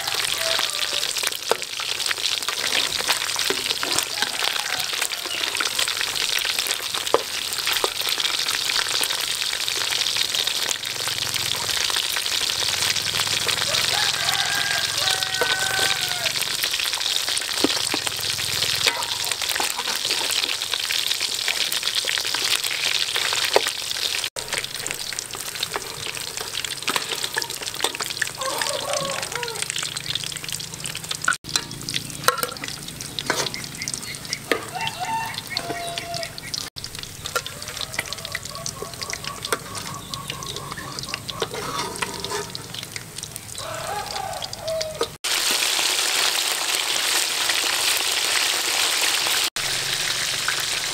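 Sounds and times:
fish sizzling in hot oil: 0:00.0 - 0:50.9
metal spatula scraping pan: 0:18.6 - 0:20.6, 0:25.6 - 0:28.6, 0:31.5 - 0:34.7, 0:39.0 - 0:42.9.

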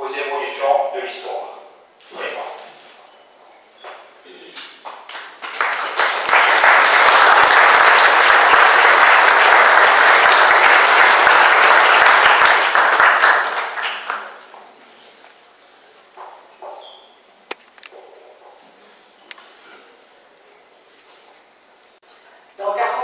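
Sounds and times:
audience applauding: 0:04.8 - 0:14.6.

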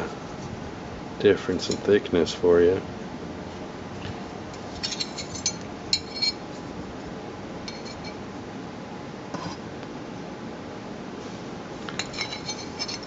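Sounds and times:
steel blanks clinking: 0:12.0 - 0:13.0.

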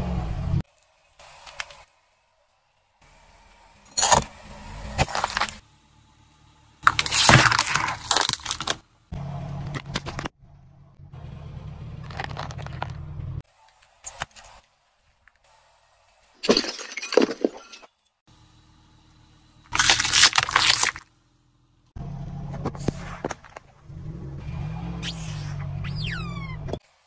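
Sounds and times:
car engine hum: 0:00.0 - 0:14.0, 0:18.2 - 0:27.0
plastic crunching under car tyre: 0:06.8 - 0:08.8, 0:12.0 - 0:13.1, 0:19.7 - 0:21.1.

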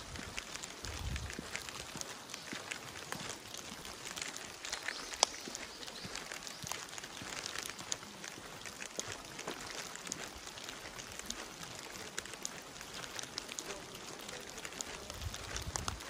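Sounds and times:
light rain hissing: 0:00.0 - 0:16.0
raindrops tapping: 0:00.0 - 0:16.0.

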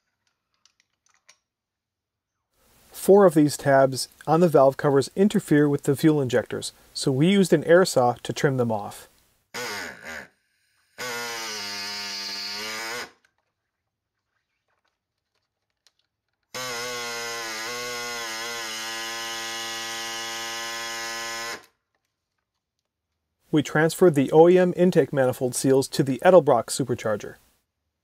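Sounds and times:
pneumatic air saw cutting: 0:09.6 - 0:13.2, 0:16.6 - 0:21.6.

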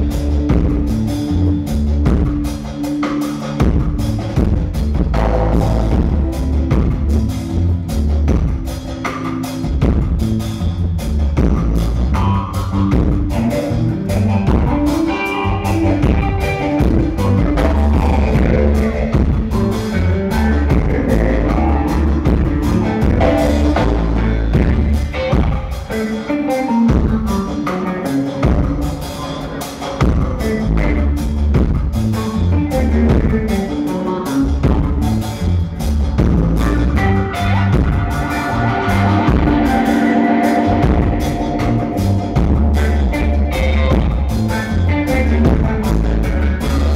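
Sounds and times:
dub reggae band playing: 0:00.0 - 0:46.9
heavy bass guitar line: 0:00.0 - 0:46.9.

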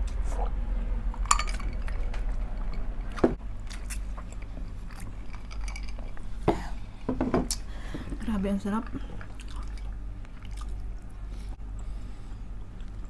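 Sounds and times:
steady low hum: 0:00.0 - 0:13.0
glass clinking: 0:01.3 - 0:02.0
chewing: 0:01.6 - 0:06.3, 0:08.8 - 0:11.2.

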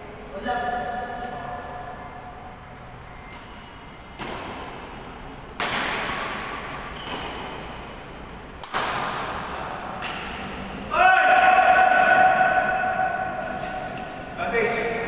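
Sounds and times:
racket hitting shuttlecock with echo: 0:03.4 - 0:10.7.

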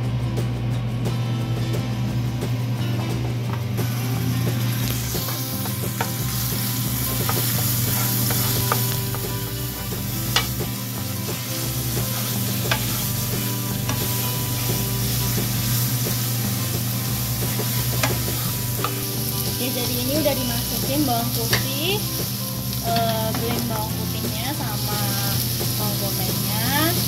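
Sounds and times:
garlic and onion sizzling in oil: 0:01.4 - 0:27.0
utensil clicking against pan: 0:10.3 - 0:10.8, 0:17.5 - 0:19.0, 0:21.5 - 0:21.7.

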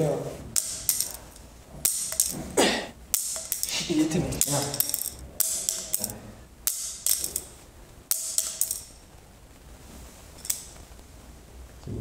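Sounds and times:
clothing rustling: 0:08.9 - 0:11.8.

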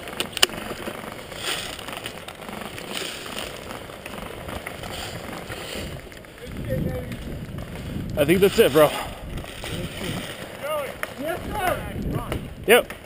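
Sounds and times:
footsteps in dry leaves: 0:00.0 - 0:11.4.

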